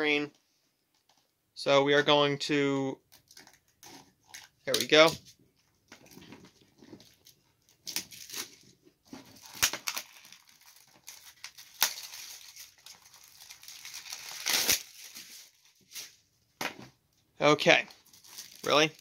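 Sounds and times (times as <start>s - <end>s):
plastic shrink-wrap crinkling: 6.0s - 16.1s, 17.9s - 19.0s.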